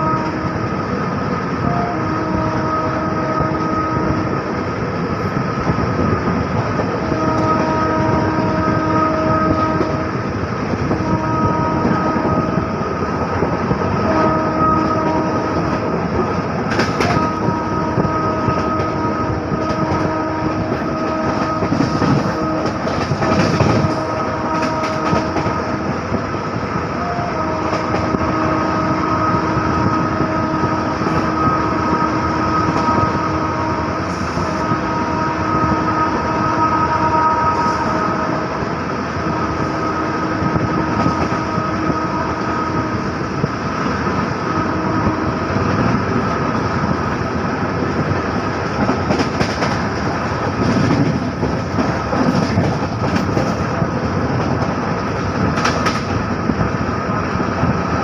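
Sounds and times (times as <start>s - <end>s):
locomotive horn: 0.0s - 5.4s, 6.7s - 58.0s
train wheels clattering on track: 3.4s - 34.9s, 37.5s - 58.0s.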